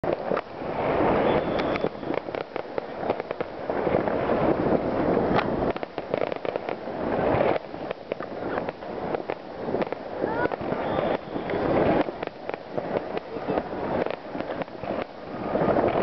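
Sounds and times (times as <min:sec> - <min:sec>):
fireworks bangs and crackling: 0:00.0 - 0:16.0.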